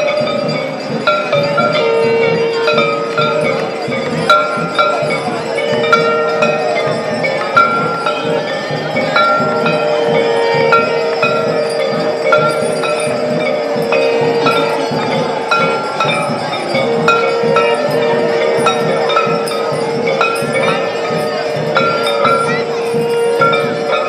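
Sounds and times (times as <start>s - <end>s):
bells struck in rhythm: 0.0s - 24.0s
crowd and river hum: 0.0s - 24.0s
long held note: 9.2s - 20.4s.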